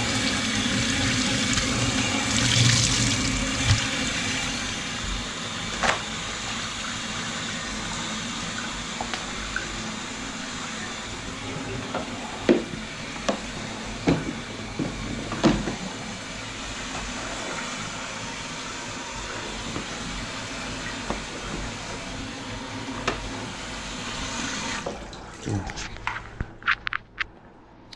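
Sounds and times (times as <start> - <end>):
faucet water running into sink: 0.0 - 5.0, 19.6 - 25.5.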